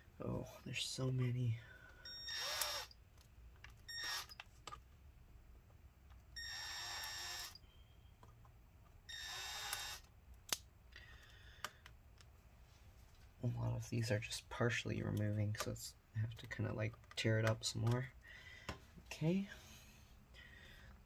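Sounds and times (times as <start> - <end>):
electric screwdriver whirring: 2.2 - 2.9, 3.9 - 4.4, 6.4 - 7.6, 9.1 - 10.1.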